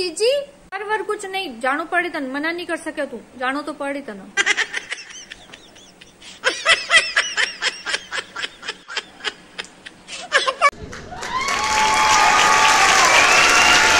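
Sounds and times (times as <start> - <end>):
person laughing in pulses: 4.4 - 10.8
applause: 10.7 - 13.9.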